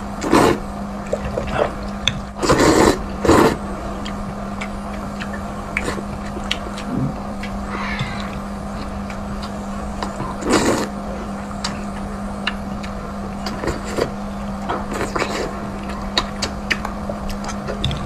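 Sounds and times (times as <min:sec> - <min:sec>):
steady low hum: 0:00.0 - 0:18.0
wet chewing with mouth clicks: 0:00.2 - 0:18.0
noodles being slurped: 0:02.4 - 0:03.6, 0:10.0 - 0:10.9.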